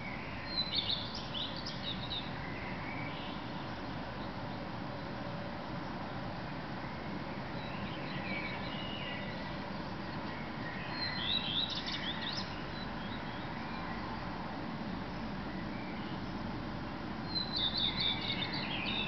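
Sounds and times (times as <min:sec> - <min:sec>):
faint bird song: 0:00.0 - 0:19.0
low background noise: 0:00.0 - 0:19.0
redstart singing: 0:17.3 - 0:19.0.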